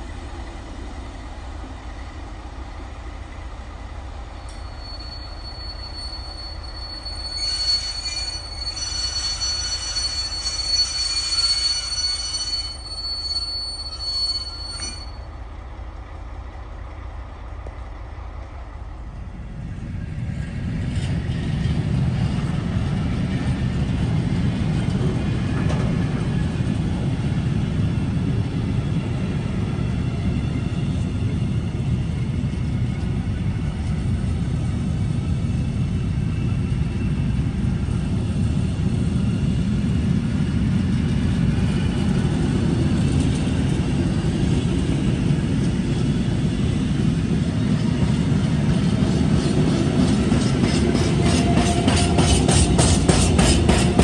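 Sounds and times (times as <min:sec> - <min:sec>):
train wheels rumbling on rails: 0:00.0 - 0:54.0
high-pitched wheel squeal: 0:04.4 - 0:15.3.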